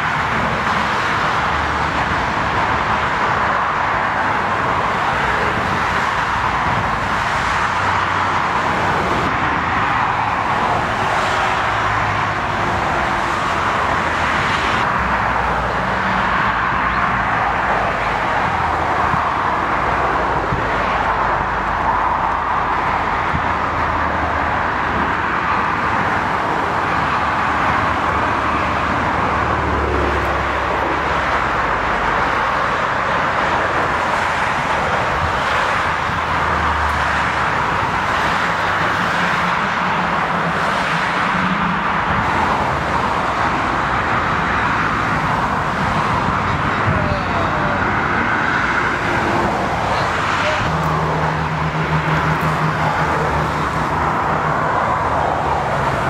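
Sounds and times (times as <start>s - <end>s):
jet engines roaring: 0.0s - 56.0s
wind on microphone: 41.2s - 56.0s.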